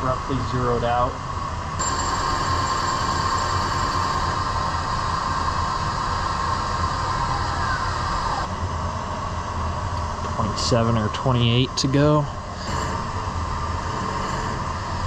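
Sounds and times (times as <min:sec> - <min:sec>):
machine spindle whining: 0:01.7 - 0:08.6, 0:10.0 - 0:15.0.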